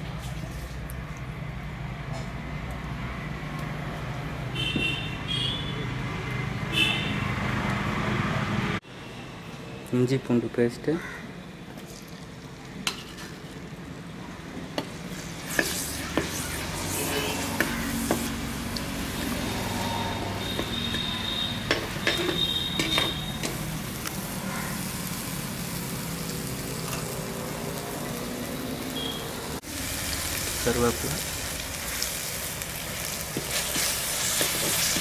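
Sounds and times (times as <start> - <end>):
paste sizzling in a pot: 14.9 - 35.0
steel ladle scraping and tapping pot: 17.0 - 23.6.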